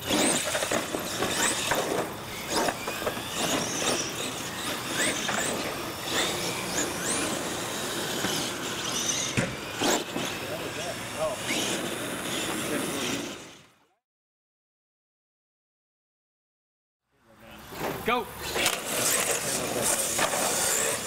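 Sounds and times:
tyre noise on concrete: 0:00.0 - 0:11.8, 0:17.6 - 0:21.0
toy truck motors whining: 0:00.0 - 0:13.9, 0:17.6 - 0:21.0.

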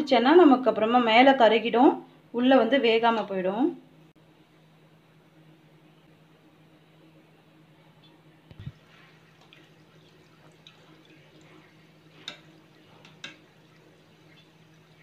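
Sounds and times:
low steady hum: 0:00.0 - 0:15.0
gentle crackling of frying oil: 0:07.2 - 0:15.0
wire skimmer clicking on pan: 0:12.2 - 0:13.6.

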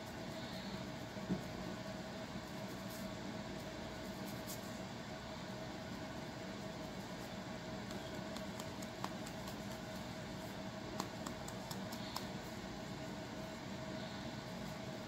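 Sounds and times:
background hum and hiss: 0:00.0 - 0:15.0
comb scratching scalp clicks: 0:07.8 - 0:10.0, 0:10.9 - 0:12.4.

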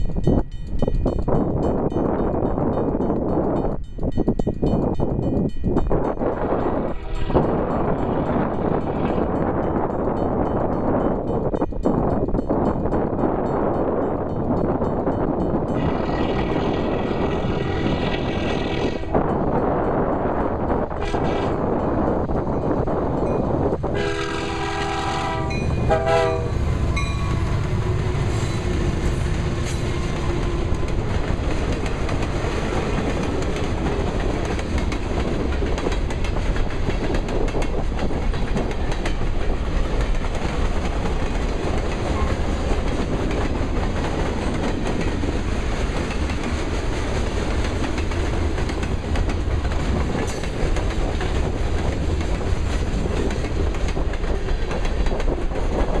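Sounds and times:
wind buffeting microphone: 0:00.0 - 0:56.0
locomotive air horn: 0:20.9 - 0:21.6, 0:23.9 - 0:28.1
wheels clacking over rail joints: 0:25.4 - 0:56.0.

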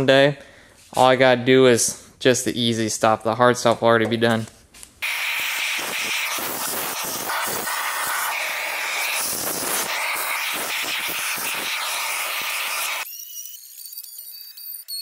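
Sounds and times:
air hissing through hose nozzle: 0:05.0 - 0:13.1.

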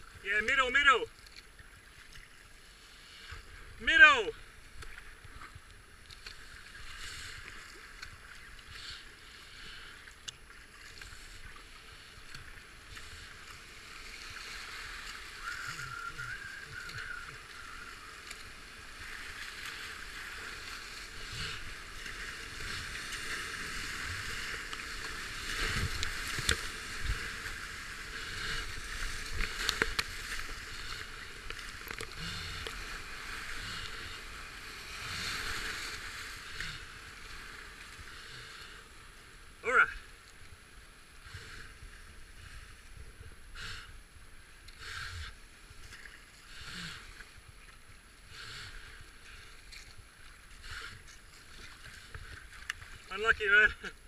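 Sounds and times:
waves splashing: 0:00.0 - 0:44.0, 0:44.9 - 0:54.0
paddle strokes: 0:00.1 - 0:39.0, 0:41.2 - 0:54.0
rush of foaming water: 0:06.7 - 0:38.4.

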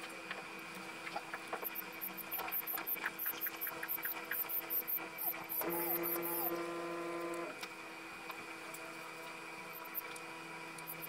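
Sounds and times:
faint steady hum: 0:00.0 - 0:11.0
hydraulic pump whining: 0:05.5 - 0:07.6.

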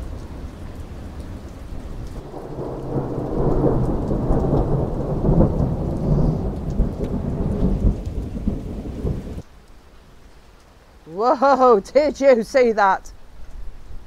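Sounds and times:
thunder rumbling: 0:00.0 - 0:09.4
steady rain: 0:00.0 - 0:14.0.

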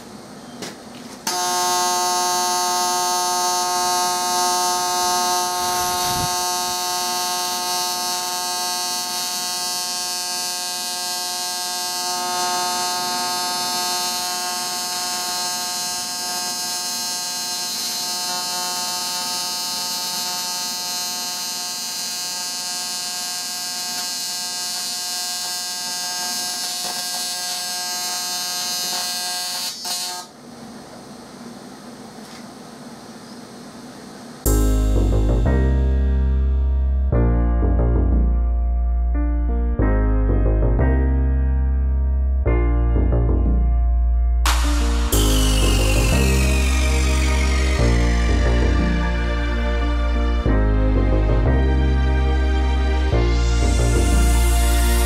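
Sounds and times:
welding arc buzzing: 0:01.2 - 0:30.4, 0:44.5 - 0:49.9.

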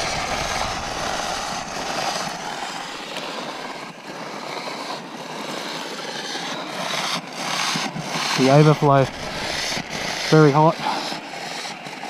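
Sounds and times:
coolant boiling with hiss and bubbling: 0:00.0 - 0:12.0.

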